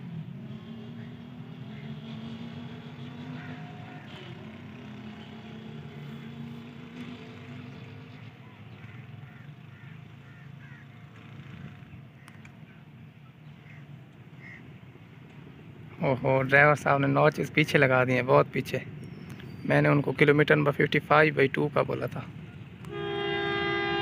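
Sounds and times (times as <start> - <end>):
locomotive engine drone: 0.0 - 16.0, 22.1 - 24.0.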